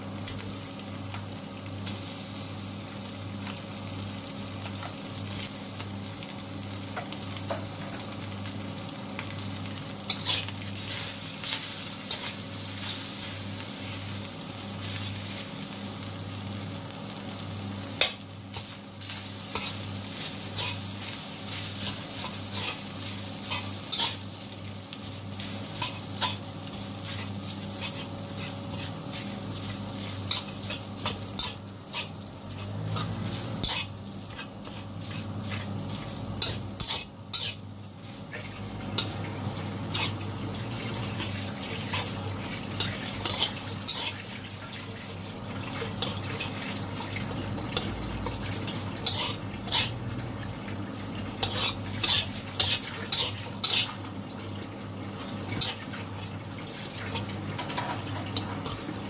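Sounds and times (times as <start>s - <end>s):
frying sizzle: 0.0s - 59.0s
metal spatula scraping a wok: 20.5s - 20.8s, 21.8s - 24.2s, 27.1s - 29.4s, 30.0s - 35.7s, 36.4s - 37.6s, 39.9s - 40.2s, 42.8s - 44.3s, 49.0s - 50.0s, 51.4s - 54.0s.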